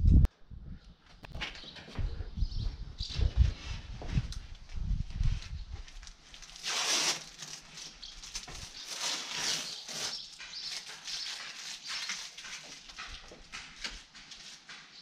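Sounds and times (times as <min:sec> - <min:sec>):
cardboard tube rustling and scraping: 0:06.3 - 0:13.2.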